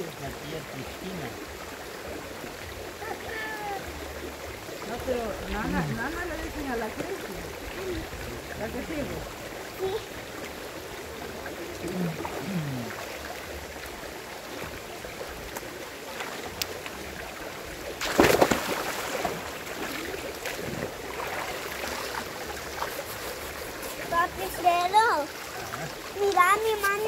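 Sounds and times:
river water rushing: 0.0 - 27.0
loud splash: 18.0 - 22.2.

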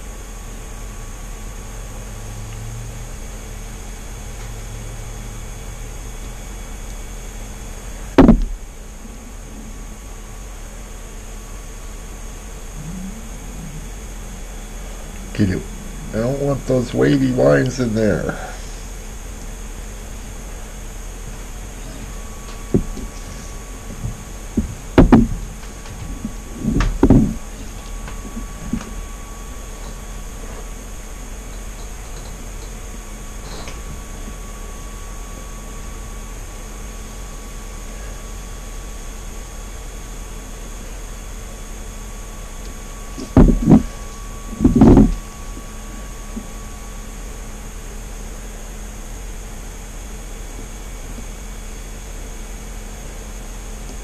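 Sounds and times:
fan hum and hiss: 0.0 - 54.0
dull knocks and bumps: 8.2 - 8.6, 22.5 - 29.0, 43.2 - 45.2
loud knock: 8.2 - 8.6, 24.6 - 25.4, 43.4 - 43.9, 44.6 - 45.2.

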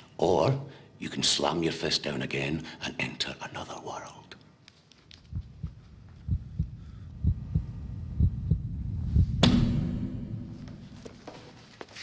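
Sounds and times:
hum: 5.2 - 11.6
heartbeat double thump: 5.3 - 10.2
loud sharp crash: 9.4 - 11.0.

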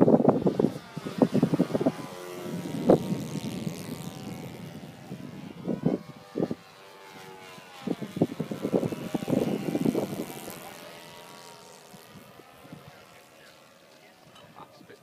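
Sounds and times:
wind buffeting microphone: 0.0 - 13.3
distant propeller aircraft engine: 0.0 - 15.0.

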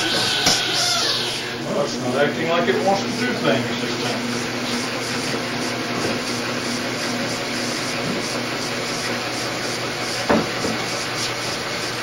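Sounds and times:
electric motor whirring: 0.0 - 1.9.

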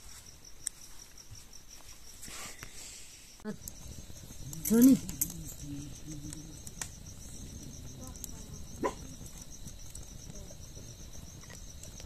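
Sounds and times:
crickets chirping: 0.0 - 12.0
wood fire crackling: 3.4 - 12.0.

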